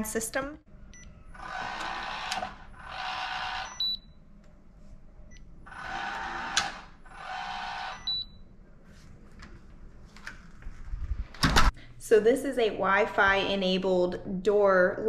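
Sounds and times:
lock motor whirring: 1.0s - 4.0s, 5.6s - 8.3s.

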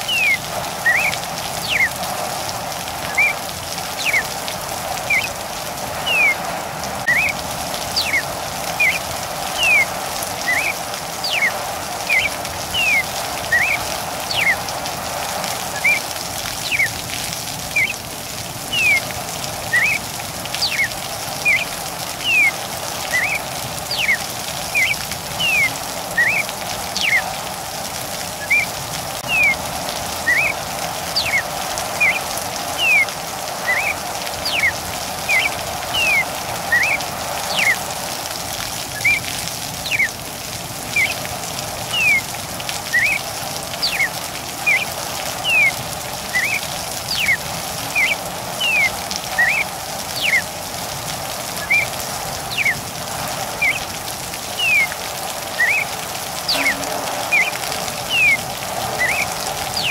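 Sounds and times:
bird singing whistled notes: 0.0s - 2.0s, 3.1s - 4.3s, 5.0s - 5.4s, 6.0s - 6.4s, 7.0s - 14.7s, 15.6s - 17.0s, 17.7s - 18.0s, 18.7s - 20.0s, 20.6s - 27.3s, 28.4s - 29.6s, 30.2s - 37.8s, 38.9s - 40.2s, 40.9s - 41.2s, 41.9s - 42.3s, 42.9s - 43.2s, 43.8s - 50.5s, 51.6s - 51.9s, 52.5s - 52.8s, 53.5s - 53.9s, 54.5s - 59.9s
steady rain: 0.0s - 59.9s.

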